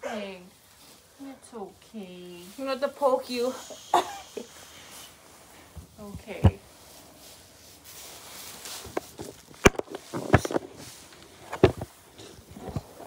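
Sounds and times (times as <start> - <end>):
footsteps through straw: 6.7 - 11.2.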